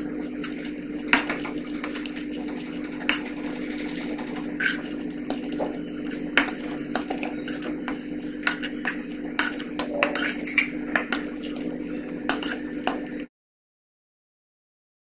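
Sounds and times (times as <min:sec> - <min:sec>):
steady low hum: 0:00.0 - 0:13.3
metal spatula scraping steel pan: 0:01.1 - 0:11.6.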